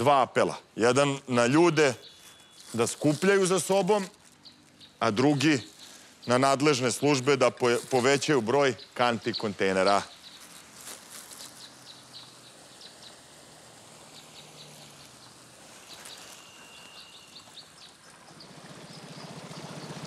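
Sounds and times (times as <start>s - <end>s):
birds chirping: 0.0s - 20.0s
outboard motor humming: 12.2s - 20.0s.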